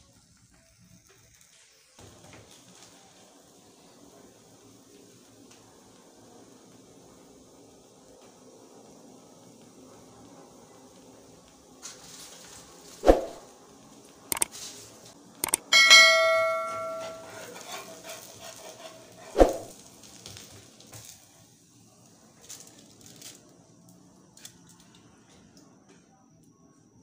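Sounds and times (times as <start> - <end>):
sharp clicks: 14.3 - 14.5, 15.4 - 15.7
ringing metal clang: 15.5 - 17.8.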